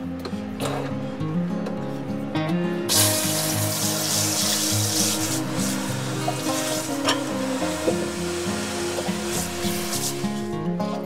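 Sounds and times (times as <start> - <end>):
background music: 0.0 - 11.0
shower head spraying water: 2.9 - 10.5.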